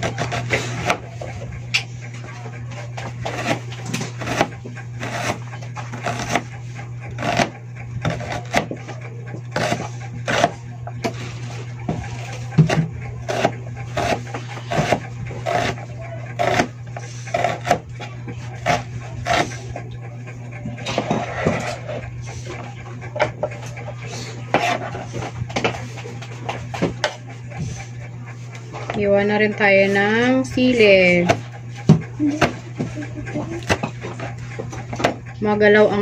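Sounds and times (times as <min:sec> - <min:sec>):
steady low hum: 0:00.0 - 0:36.0
knife chopping on cutting board: 0:03.3 - 0:03.6, 0:04.2 - 0:06.4, 0:09.6 - 0:10.6, 0:12.6 - 0:15.8, 0:16.4 - 0:16.7, 0:17.3 - 0:17.8, 0:18.6 - 0:19.5.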